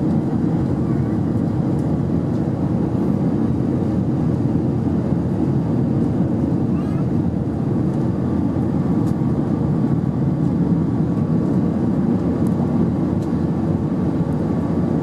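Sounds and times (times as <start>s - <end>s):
airplane engines and airflow rush: 0.0s - 15.0s.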